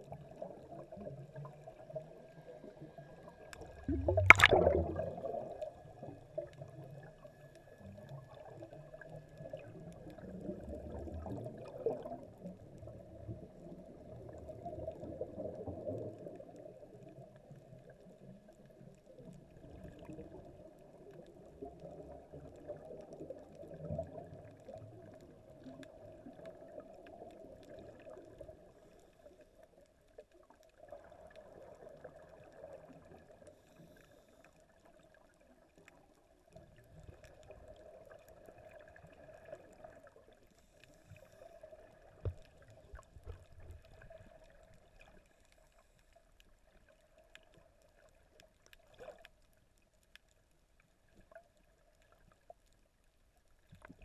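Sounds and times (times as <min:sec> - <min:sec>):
underwater regulator bubbles gurgling: 0:00.0 - 0:29.3.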